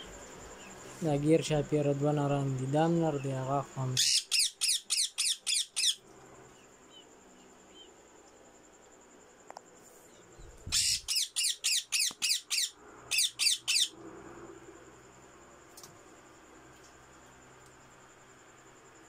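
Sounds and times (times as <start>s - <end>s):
parakeets squawking harshly: 4.0s - 6.0s, 10.7s - 14.0s.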